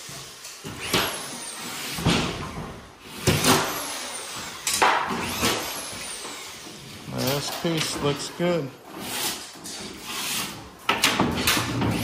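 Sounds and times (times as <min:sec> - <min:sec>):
knocks and thumps on drywall: 0:01.9 - 0:03.8, 0:10.9 - 0:12.0.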